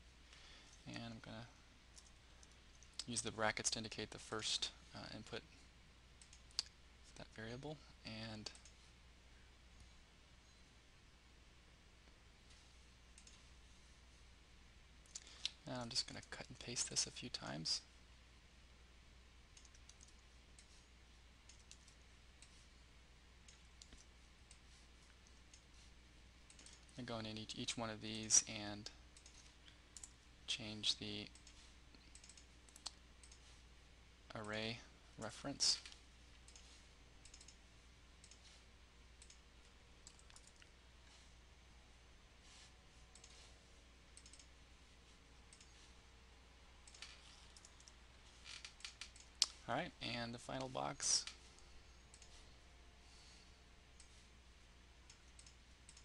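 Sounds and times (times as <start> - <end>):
low steady hum: 0.0 - 56.0
computer mouse clicks: 1.9 - 3.2, 6.2 - 6.8, 12.5 - 13.5, 19.5 - 22.6, 23.4 - 25.9, 26.5 - 27.0, 29.1 - 30.2, 31.1 - 33.6, 35.8 - 37.6, 38.2 - 38.6, 39.2 - 39.4, 40.0 - 41.2, 43.1 - 43.5, 44.1 - 44.5, 45.5 - 45.9, 46.8 - 49.6, 50.6 - 52.4, 53.9 - 54.2, 55.0 - 56.0
mouse and keyboard clicks: 35.8 - 37.6.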